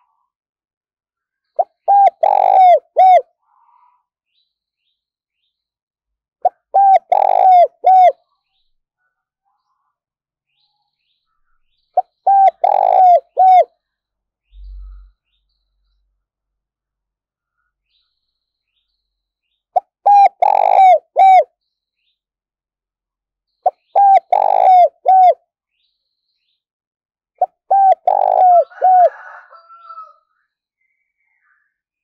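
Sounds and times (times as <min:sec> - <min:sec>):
dove cooing: 0:01.8 - 0:03.3, 0:06.4 - 0:08.2, 0:12.2 - 0:13.7, 0:20.0 - 0:21.5, 0:23.7 - 0:25.4, 0:27.4 - 0:30.0.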